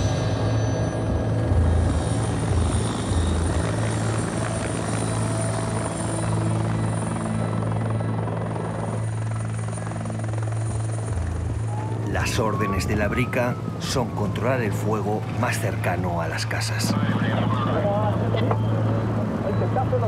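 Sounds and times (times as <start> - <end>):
helicopter rotor drone: 0.0 - 20.0
high turbine whine: 0.0 - 20.0.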